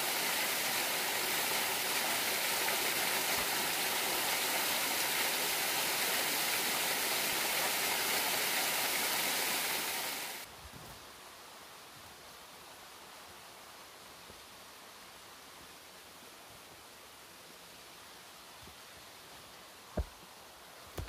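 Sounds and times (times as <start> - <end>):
waterfall pouring onto rocks: 0.0 - 10.5
quiet outdoor hiss: 0.0 - 21.0.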